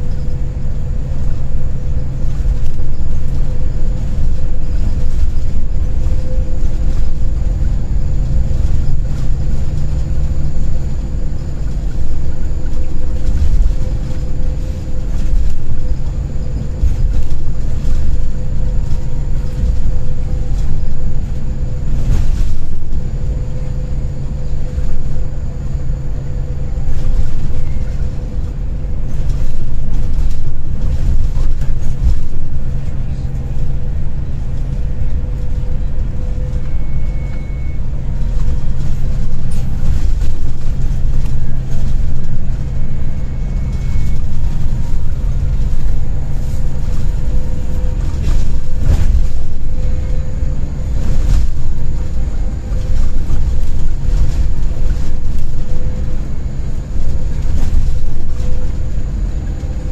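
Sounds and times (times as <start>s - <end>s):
coach engine rumble: 0.0s - 59.9s
road noise: 0.0s - 59.9s.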